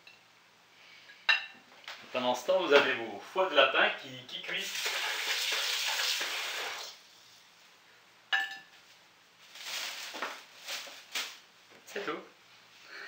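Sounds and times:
steady hiss: 0:00.1 - 0:08.0
kitchenware clink: 0:08.3 - 0:08.7.

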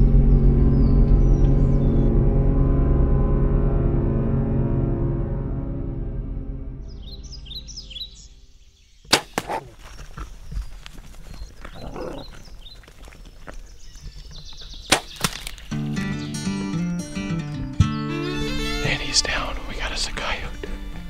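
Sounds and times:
music: 0:00.0 - 0:08.6, 0:15.7 - 0:21.0
bowstring snapping: 0:09.1 - 0:09.7, 0:14.9 - 0:15.7.

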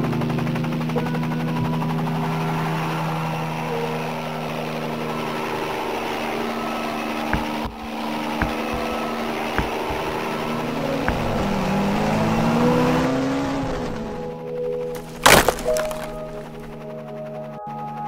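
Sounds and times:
helicopter engine and rotor: 0:00.0 - 0:11.6
dull thumps: 0:15.0 - 0:16.7.

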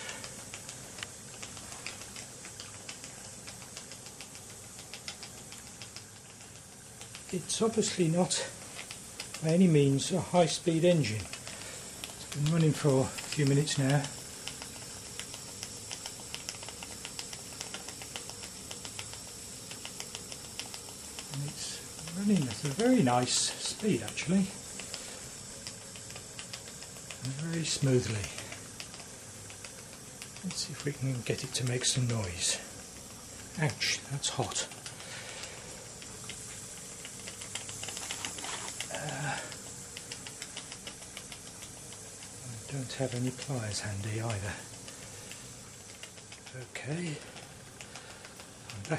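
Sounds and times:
faint boiler hiss: 0:00.0 - 0:48.9
model steam engine ticking: 0:00.0 - 0:48.9.

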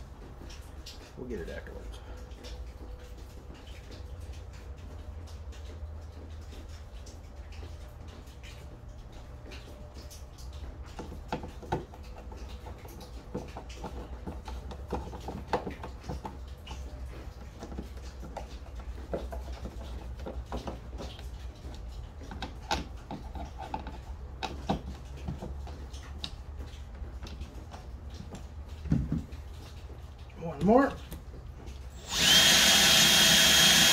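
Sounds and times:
screwdriver clicks and scrapes: 0:32.0 - 0:33.9.

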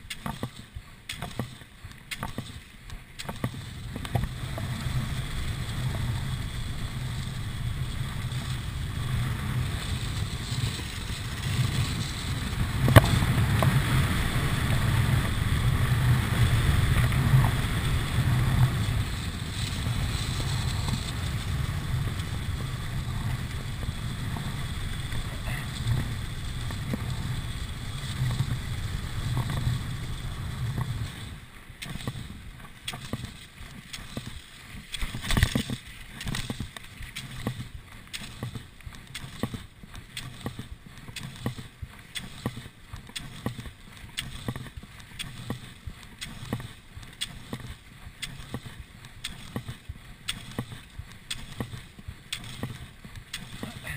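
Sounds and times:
ski poling: 0:00.0 - 0:53.9
skis hissing in snow tracks: 0:00.0 - 0:53.9
wind rushing on microphone: 0:03.4 - 0:38.6.

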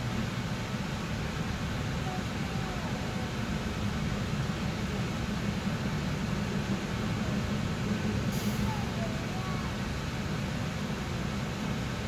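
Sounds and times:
diesel engine drone: 0:00.0 - 0:12.0
road noise: 0:00.0 - 0:12.0
brief hiss: 0:08.3 - 0:08.8.

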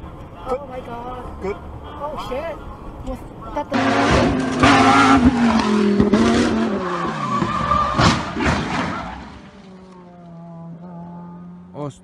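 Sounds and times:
tyres squealing and skidding: 0:00.0 - 0:09.9.

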